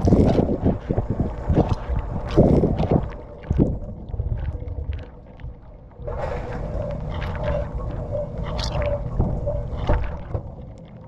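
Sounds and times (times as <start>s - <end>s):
dishwasher low hum: 0.0s - 11.0s
dishwasher water splashing: 6.1s - 10.6s.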